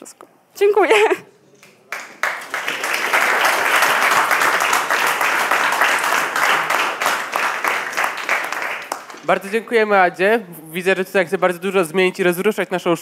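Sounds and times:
audience applauding: 0:01.6 - 0:09.6.

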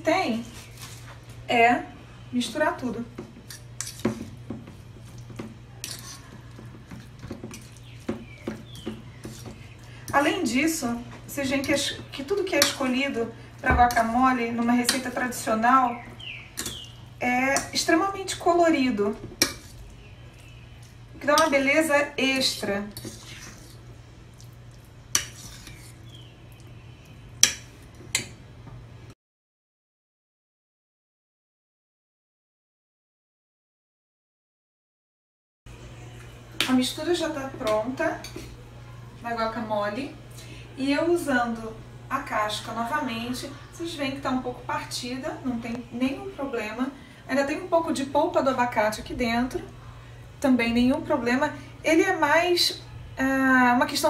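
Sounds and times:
fork scraping metal bowl: 0:03.4 - 0:04.3, 0:05.0 - 0:09.8, 0:19.3 - 0:21.7, 0:22.3 - 0:26.2
fork tapping metal bowl: 0:14.8 - 0:15.0, 0:27.4 - 0:28.3.

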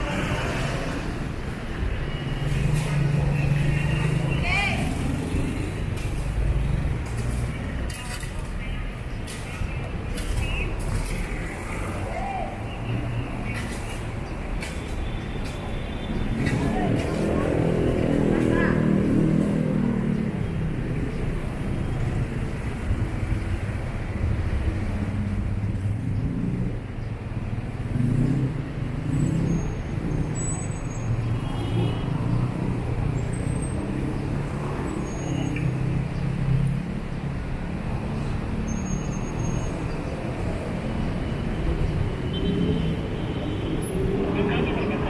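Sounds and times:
vehicles passing: 0:00.0 - 0:45.0.

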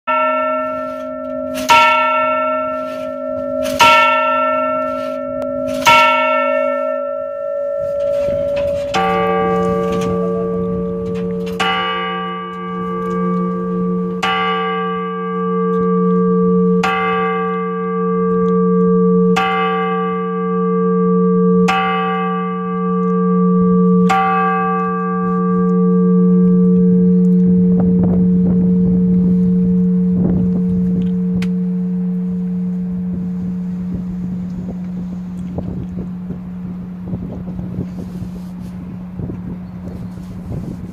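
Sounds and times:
smaller clock bell striking: 0:00.1 - 0:35.4
large low bell striking: 0:00.1 - 0:40.9.

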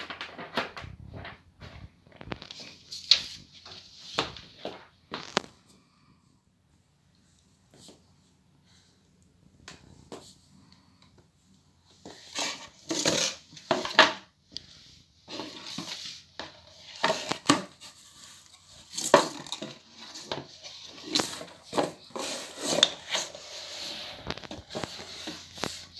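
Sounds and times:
knocks scrapes and rustles of handling: 0:11.8 - 0:25.9.

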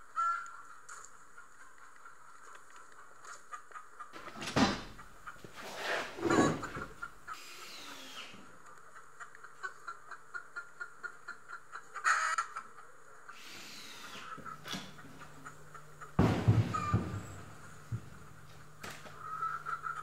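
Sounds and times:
chickens clucking: 0:00.0 - 0:13.4, 0:14.0 - 0:20.0
loud knock: 0:16.2 - 0:18.1.

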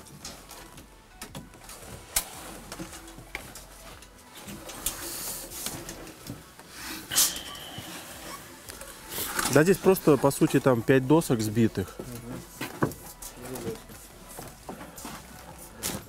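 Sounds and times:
plastic membrane rustling: 0:08.2 - 0:16.0.

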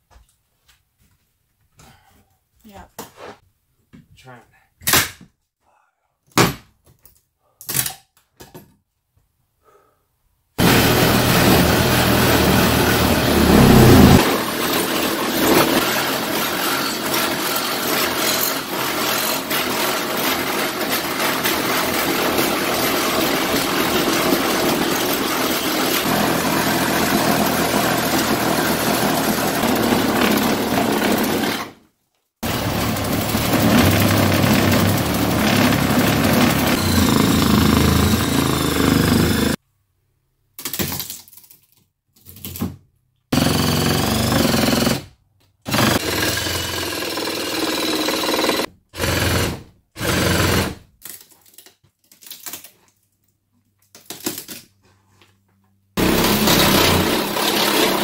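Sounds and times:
power saw cutting wood: 0:10.6 - 0:31.8, 0:32.4 - 0:39.6, 0:43.4 - 0:45.0, 0:45.7 - 0:50.8, 0:56.0 - 0:58.0.

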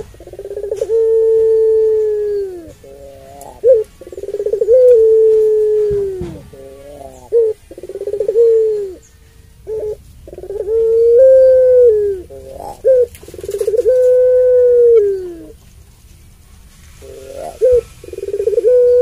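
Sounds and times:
dove cooing: 0:00.0 - 0:15.6, 0:16.8 - 0:19.0.

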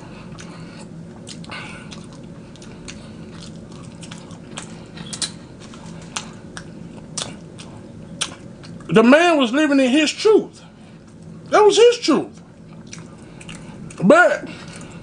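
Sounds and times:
steady low hum: 0:00.0 - 0:15.0
person chewing: 0:00.1 - 0:08.9, 0:12.3 - 0:15.0.

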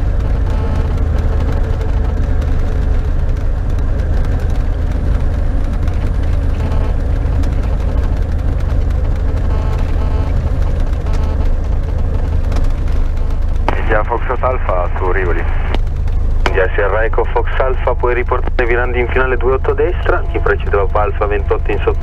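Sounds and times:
propeller aircraft engine drone: 0:00.0 - 0:22.0.

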